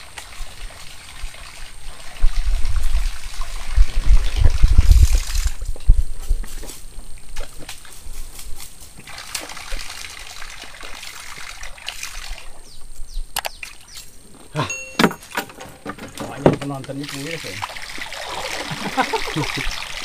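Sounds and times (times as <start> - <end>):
high pitched call: 14.6 - 15.5.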